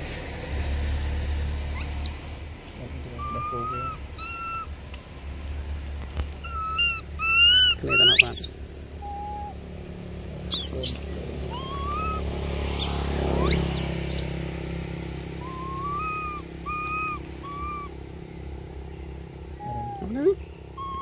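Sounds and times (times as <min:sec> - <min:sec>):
monkey squeals: 0:01.7 - 0:02.4, 0:03.1 - 0:04.7, 0:06.4 - 0:09.6, 0:10.5 - 0:14.4, 0:15.4 - 0:17.9, 0:19.6 - 0:21.0
infant monkey whimpering calls: 0:01.8 - 0:02.4, 0:03.0 - 0:04.7, 0:06.4 - 0:09.6, 0:10.5 - 0:14.3, 0:15.4 - 0:18.0, 0:19.6 - 0:21.0.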